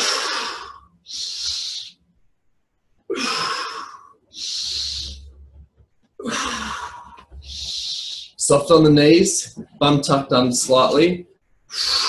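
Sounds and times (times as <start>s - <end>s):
man breathing deeply: 0.0s - 2.0s, 3.1s - 5.4s, 6.2s - 8.4s, 11.7s - 12.0s.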